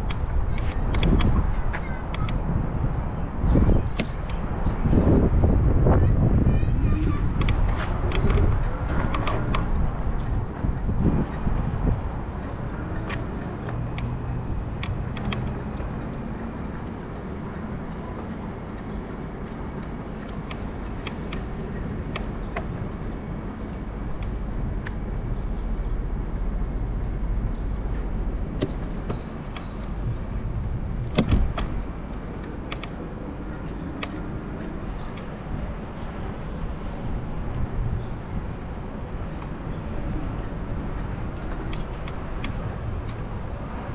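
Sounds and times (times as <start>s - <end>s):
bike clicks and rattles: 0.0s - 2.6s, 7.2s - 26.6s, 27.2s - 43.9s
wind: 0.0s - 43.9s
bicycle tyres rumbling on pavement: 6.8s - 32.4s.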